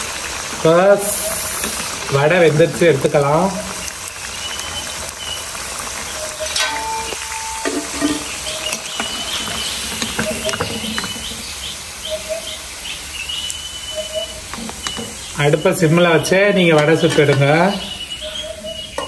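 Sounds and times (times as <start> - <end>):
food deep-frying in hot oil: 0.0 - 19.0
metal spoon clinking against pan: 6.5 - 9.1.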